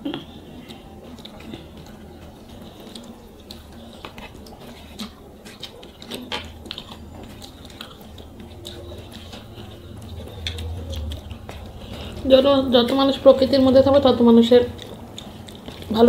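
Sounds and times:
chewing and wet mouth sounds: 0.0 - 16.0
low steady hum: 0.0 - 16.0
fingers mixing rice clicks: 0.4 - 13.1.

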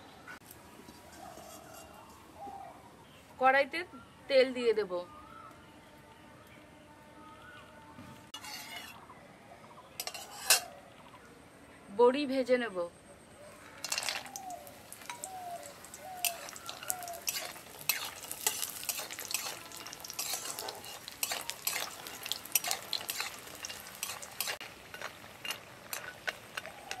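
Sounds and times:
food sizzling in hot oil: 13.8 - 27.0
sharp clicks and scrapes: 22.6 - 27.0.

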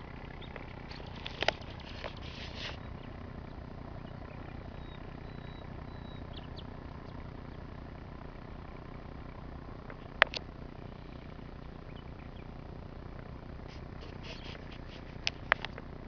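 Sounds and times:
distant tractor engine drone: 0.0 - 16.0
bird chirps: 0.1 - 7.3, 10.8 - 13.1, 13.7 - 15.1.

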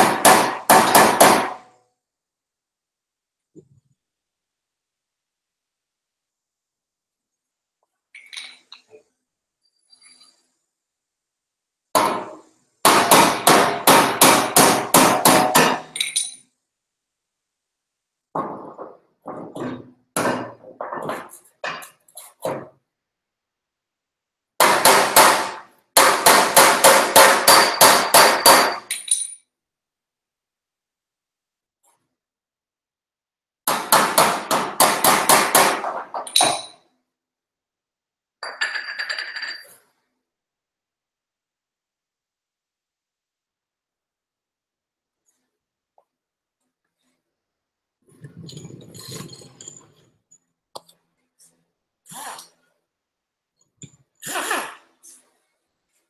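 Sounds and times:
hammer striking sheet metal: 0.0 - 1.7, 12.0 - 16.0, 24.6 - 28.9, 33.6 - 36.2.

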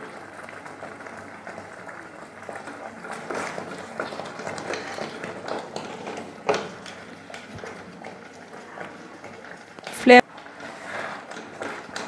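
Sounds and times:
spoon stirring in metal pot: 3.2 - 12.0.

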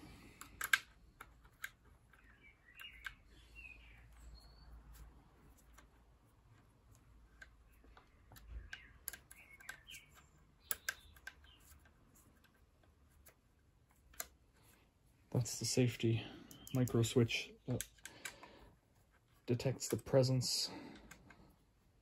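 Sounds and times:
screwdriver clicks and ticks: 0.3 - 3.2, 5.6 - 14.4, 17.7 - 18.5.

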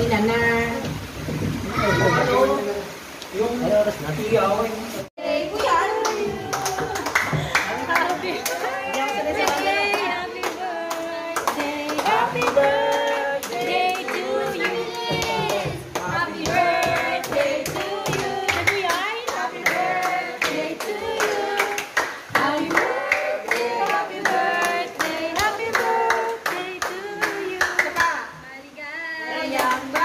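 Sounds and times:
group singing a birthday song: 0.0 - 30.0
people clapping along: 5.2 - 28.2, 29.2 - 30.0.

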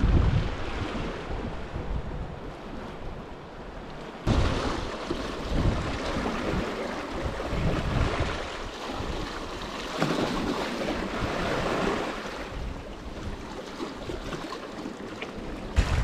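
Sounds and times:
sea water washing over rocks: 4.2 - 16.0.

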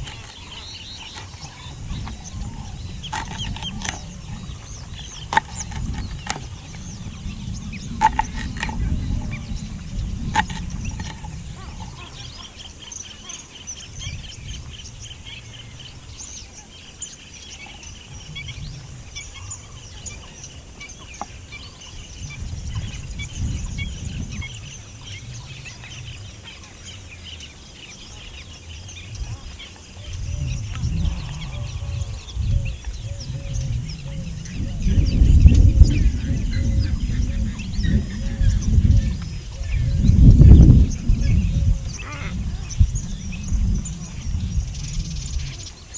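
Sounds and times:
low outdoor rumble: 0.0 - 13.1, 28.1 - 45.8
birds chirping: 0.0 - 45.9.

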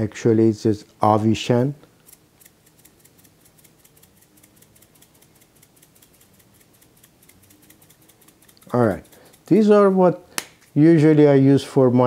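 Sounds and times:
spice grinder clicking: 2.0 - 9.8.

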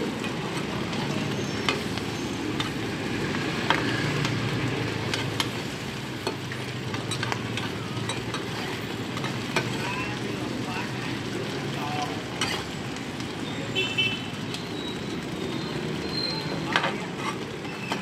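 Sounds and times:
food sizzling in oil: 0.0 - 18.0
metal spatula scraping pan: 12.3 - 12.8.

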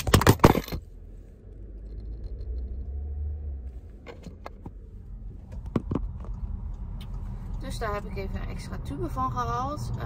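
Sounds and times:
car cabin rumble: 0.0 - 10.0.

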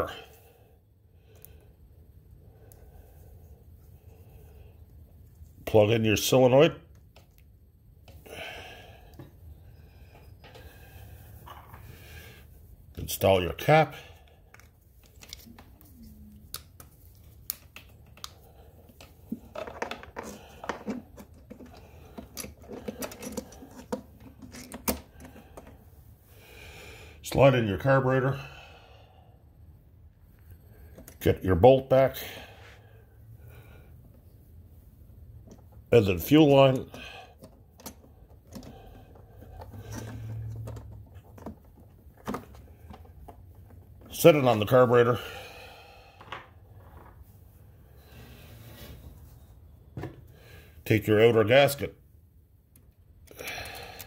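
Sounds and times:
faint clicks and rustling hands: 14.2 - 26.0
plastic parts clicking and tapping: 19.0 - 25.8, 37.4 - 44.1.

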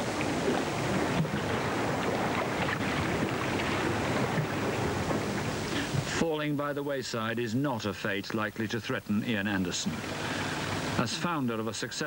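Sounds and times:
sea water washing and splashing: 0.0 - 6.2, 9.8 - 11.4.

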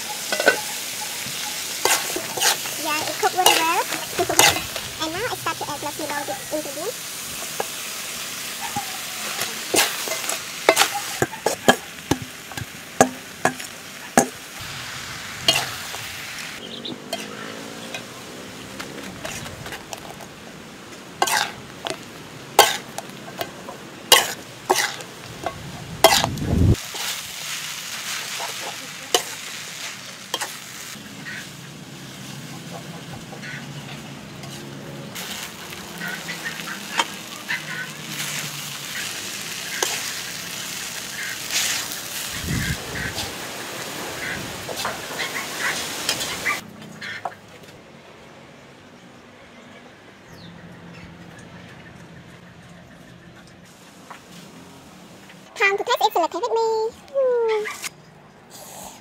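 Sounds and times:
metal utensil clanking on pan: 0.0 - 4.8, 8.6 - 14.4, 21.2 - 22.0, 22.6 - 26.3
food sizzling in a wok: 0.0 - 46.7.

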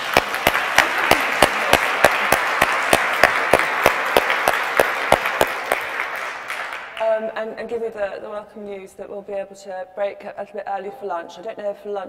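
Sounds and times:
audience applauding: 0.0 - 7.0
nearby hands clapping evenly: 0.0 - 7.0.

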